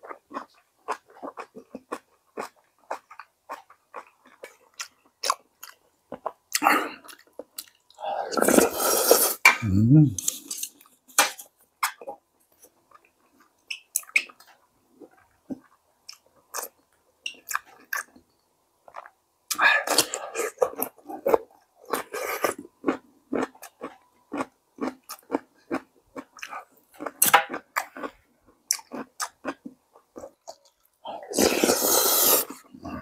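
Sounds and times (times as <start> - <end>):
person humming: 9.6 - 10.3
noisy slurp: 31.2 - 32.6.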